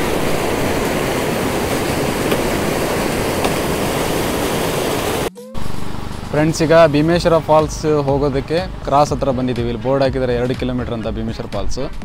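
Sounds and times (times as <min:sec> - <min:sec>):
stream rushing over rocks: 0:00.0 - 0:05.3.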